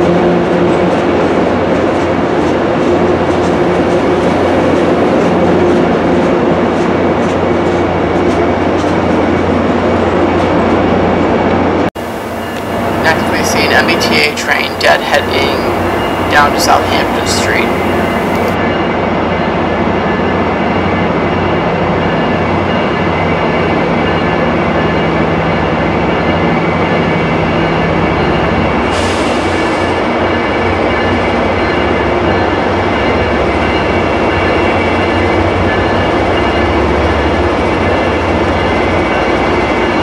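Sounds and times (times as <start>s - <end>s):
diesel locomotive engine: 0.0s - 40.0s
train coaches rolling on rails: 0.1s - 18.6s.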